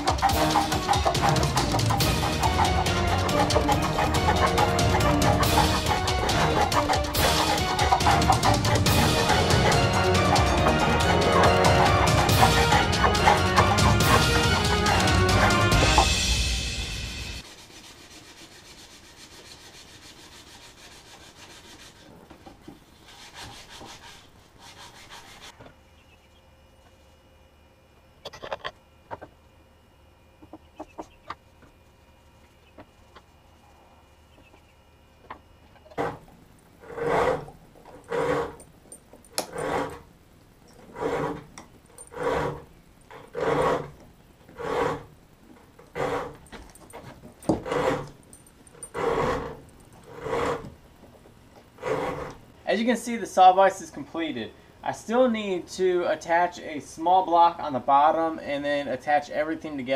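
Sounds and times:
block plane rasping on wood: 0.0 - 16.0, 17.5 - 25.5, 36.8 - 38.6, 39.4 - 40.0, 40.8 - 41.5, 42.1 - 45.1, 45.8 - 46.4, 47.5 - 48.1, 48.9 - 50.7, 51.8 - 52.4
hand rubbing on wood: 17.4 - 25.6, 51.8 - 52.4.

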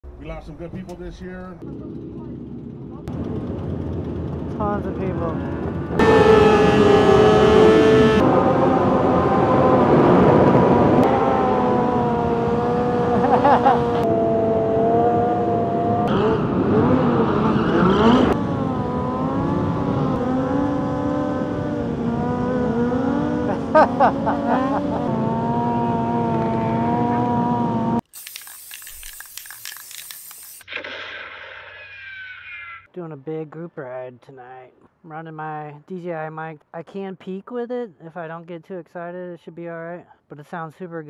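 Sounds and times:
motorcycle engine revving: 1.6 - 28.0.

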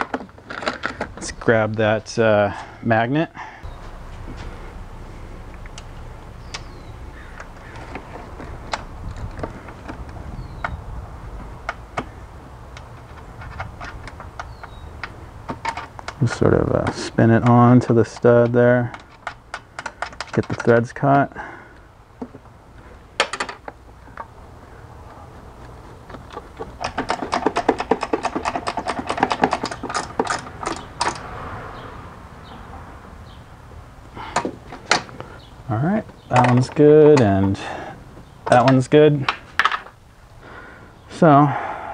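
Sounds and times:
metal parts and tools clicking: 12.7 - 20.9, 26.1 - 31.3, 36.3 - 37.7.

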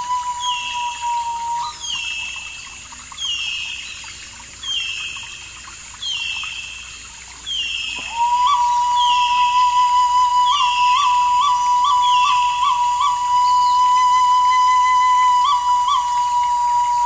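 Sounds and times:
held flute note: 0.0 - 1.8, 8.0 - 17.0.

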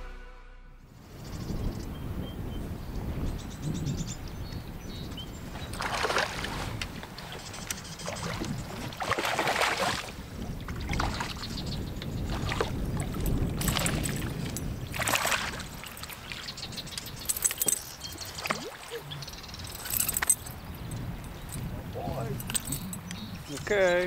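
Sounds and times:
fish splashing in water: 5.6 - 11.5, 14.9 - 16.5
light metallic clinks: 15.8 - 18.7, 19.5 - 23.7.

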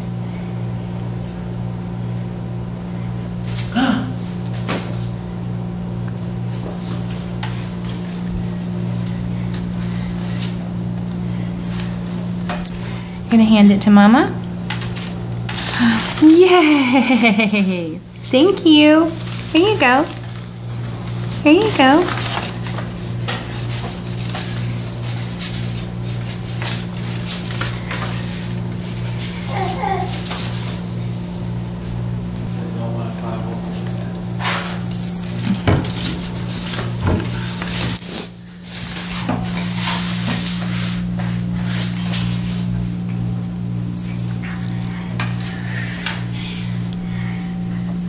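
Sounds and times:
low machine hum: 0.0 - 48.0
low hum: 30.7 - 48.0.

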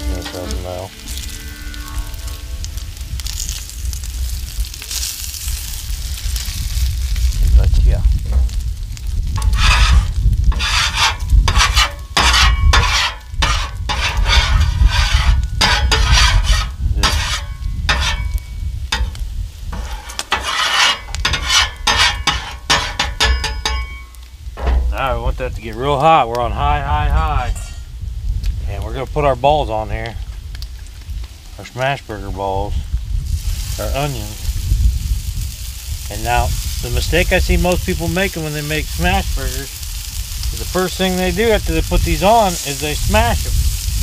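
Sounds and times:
low rumble: 0.0 - 20.4, 23.4 - 29.2
fat sizzling on griddle: 0.0 - 44.0
scraper scraping metal griddle: 9.4 - 23.9.

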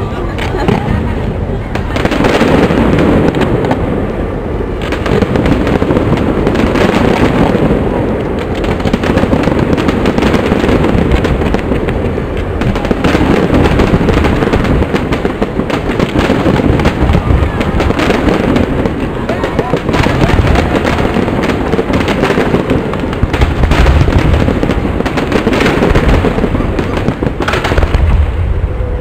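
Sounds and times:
fireworks bursting and crackling: 0.0 - 28.7.

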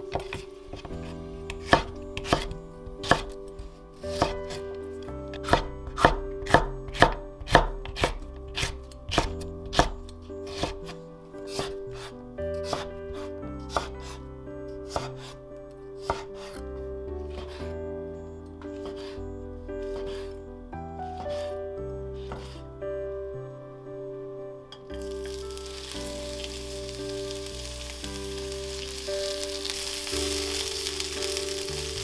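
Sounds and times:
soft background music: 0.0 - 32.0
knife chopping on wooden board: 0.1 - 3.4, 4.1 - 4.6, 5.4 - 14.2, 14.9 - 15.3, 16.0 - 16.6.

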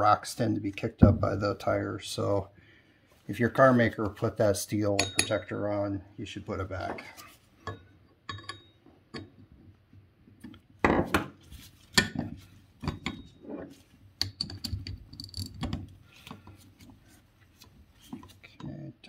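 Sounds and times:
metal tool clinks and knocks: 5.0 - 5.5, 7.7 - 9.3.

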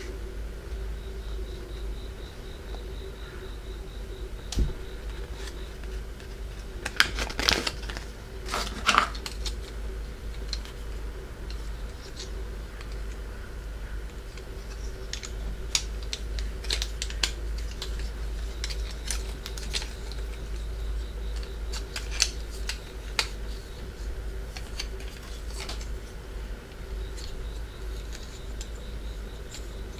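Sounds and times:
low hum: 0.0 - 29.9
plastic pieces clicking: 4.5 - 10.8, 14.1 - 20.6, 21.3 - 23.4, 24.5 - 25.9.

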